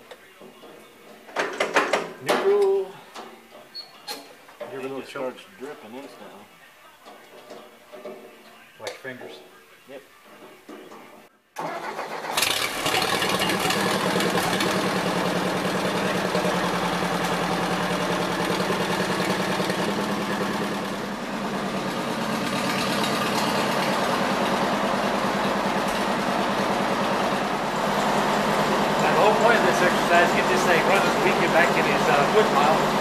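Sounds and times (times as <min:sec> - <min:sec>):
tractor engine running: 0:11.6 - 0:33.0.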